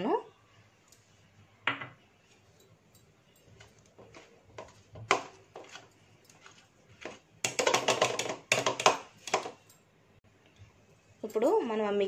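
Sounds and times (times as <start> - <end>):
whisk clicking against a bowl: 3.7 - 9.6.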